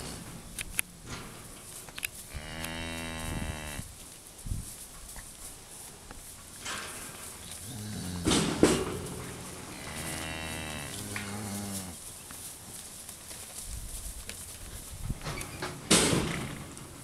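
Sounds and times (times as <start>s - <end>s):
cow mooing: 2.3s - 3.9s, 7.6s - 8.9s, 9.7s - 12.0s.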